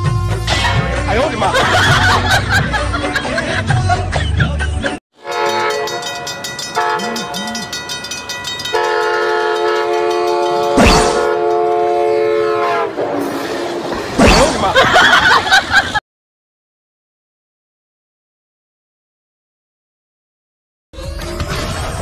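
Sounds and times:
train horn blowing: 5.2 - 7.4, 8.7 - 13.9.

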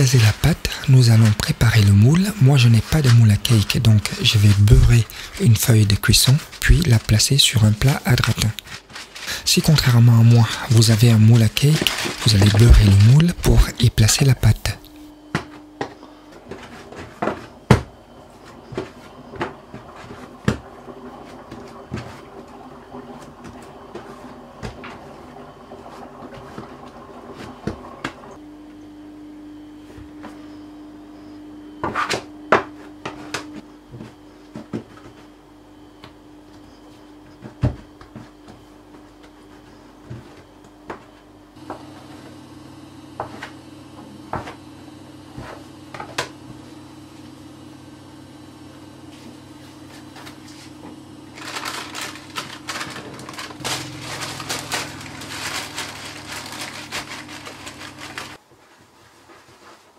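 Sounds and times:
hands kneading dough: 0.0 - 14.7, 49.1 - 59.9
parchment paper rustling: 0.0 - 14.7, 49.2 - 59.9
steady low hum: 0.0 - 59.9.

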